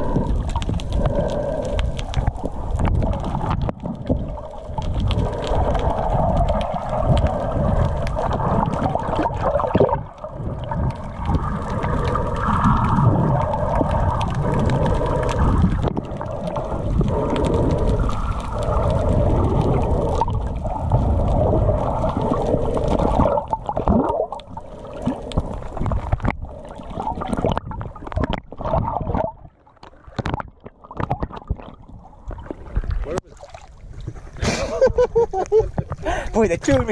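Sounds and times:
muffled underwater rumble: 0.0s - 36.9s.

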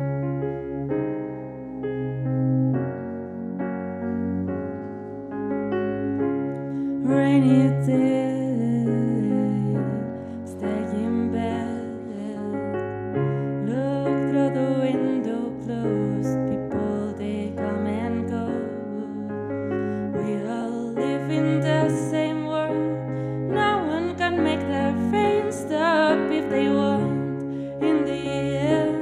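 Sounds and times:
electric piano chords: 0.0s - 29.0s
woman singing: 7.0s - 12.9s, 13.6s - 29.0s.

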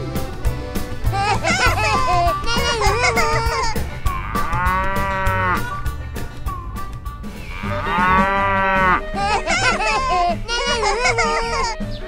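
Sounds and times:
background music with beat: 0.0s - 12.0s
cow mooing: 4.0s - 5.9s, 7.4s - 9.2s.

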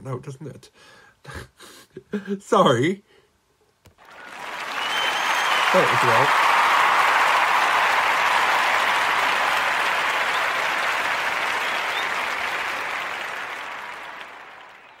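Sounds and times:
applause: 4.0s - 15.0s.

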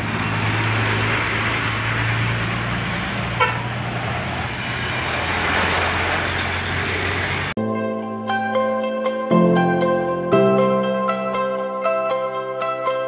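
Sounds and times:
road traffic noise: 0.0s - 7.6s
truck diesel engine running: 0.0s - 7.6s.

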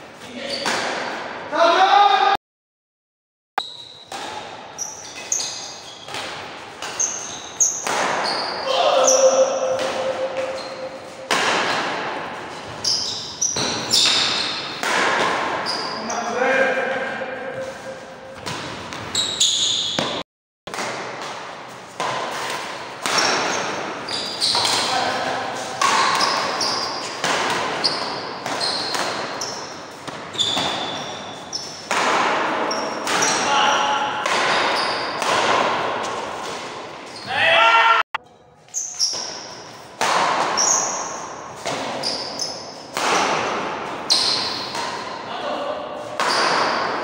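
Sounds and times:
rackets hitting shuttlecock: 0.6s - 1.3s, 3.6s - 4.7s, 5.4s - 15.7s, 19.8s - 33.5s, 34.1s - 37.1s, 38.2s - 45.3s, 46.1s - 47.0s
shoe squeaks on court floor: 3.6s - 6.2s, 6.8s - 9.4s, 10.0s - 11.3s, 12.6s - 14.8s, 15.6s - 16.4s, 17.4s - 20.2s, 23.2s - 31.9s, 32.6s - 33.8s, 34.5s - 35.2s, 38.6s - 39.7s, 40.5s - 42.9s, 44.1s - 44.8s
short high squeaks: 4.8s - 6.1s, 10.0s - 11.3s.

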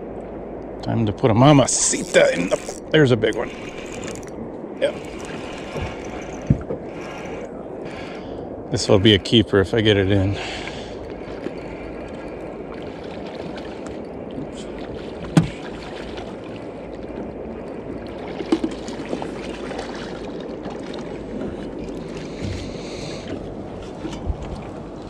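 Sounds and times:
river water washing: 1.3s - 25.0s
thuds: 5.7s - 6.8s.

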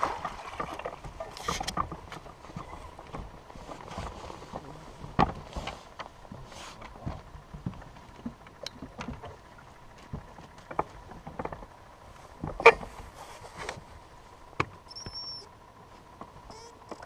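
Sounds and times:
knocks and clicks in boat: 0.0s - 17.0s.

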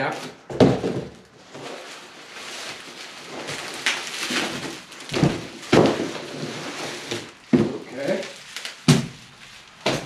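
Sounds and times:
bubble wrap and cardboard rustling: 0.0s - 10.0s
box thumping onto concrete floor: 0.5s - 1.2s.

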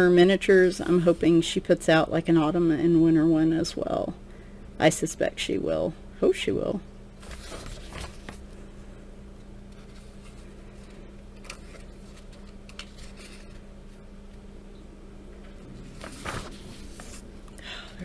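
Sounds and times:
steady low hum: 0.0s - 18.0s
paper page turning: 7.2s - 8.5s, 9.7s - 13.6s, 15.8s - 17.3s.

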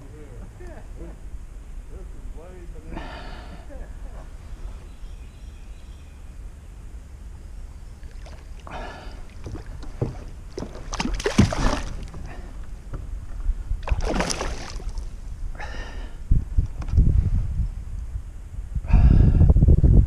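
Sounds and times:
steady low rumble: 0.0s - 20.0s
kayak paddle splashing: 8.0s - 15.3s.

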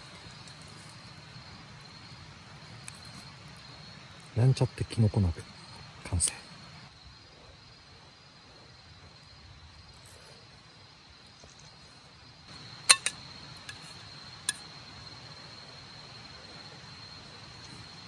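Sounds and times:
crickets chirping: 0.0s - 18.0s
chopsticks clinking on metal bowl: 12.9s - 13.9s.

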